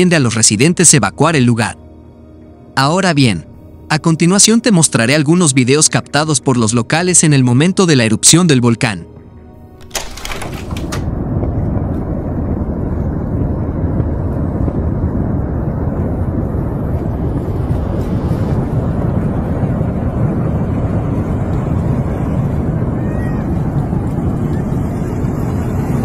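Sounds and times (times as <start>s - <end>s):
low rumbling noise: 9.0s - 26.0s.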